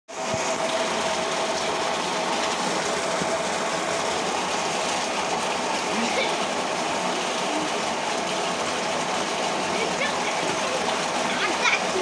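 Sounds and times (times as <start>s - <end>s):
mechanical hum: 0.1s - 12.0s
water pouring into tank: 0.1s - 12.0s
children splashing: 4.9s - 12.0s.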